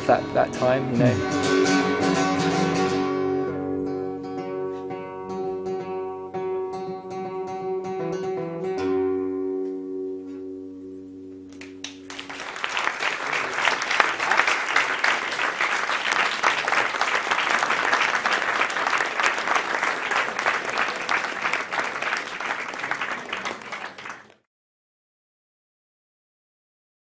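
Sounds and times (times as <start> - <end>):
acoustic guitar chord: 0.0 - 12.3
audience clapping: 11.5 - 24.4.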